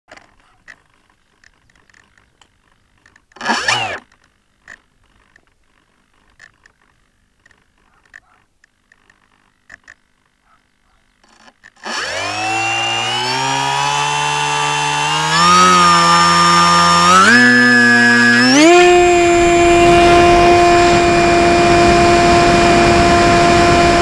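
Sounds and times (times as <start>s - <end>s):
faint clicks: 0.1s - 3.4s, 4.0s - 10.6s
electric motor whining: 3.2s - 4.2s, 11.2s - 24.0s.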